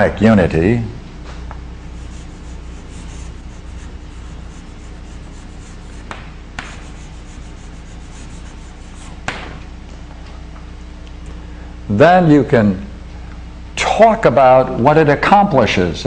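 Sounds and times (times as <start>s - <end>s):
steady low hum: 0.0s - 16.0s
chalk scratching on blackboard: 1.9s - 9.3s
chalk tapping on board: 2.0s - 9.5s.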